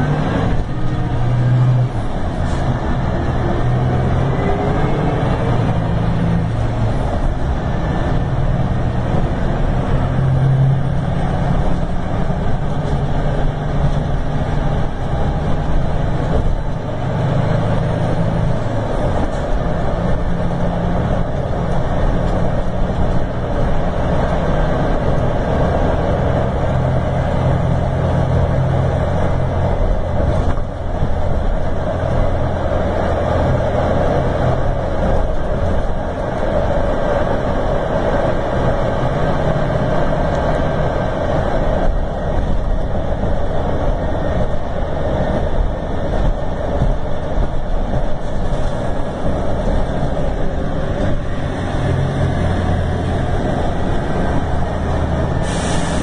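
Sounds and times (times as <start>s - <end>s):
diesel engine revving: 0.0s - 56.0s.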